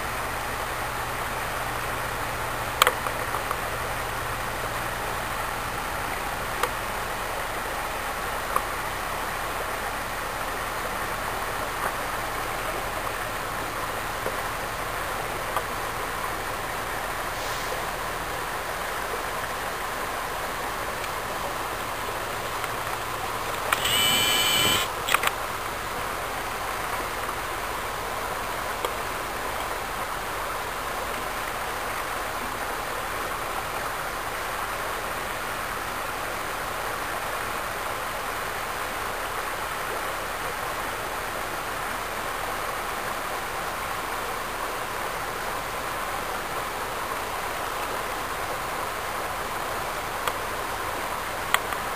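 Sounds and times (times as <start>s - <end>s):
creek water running over gravel: 0.0s - 51.9s
click: 23.5s - 25.4s.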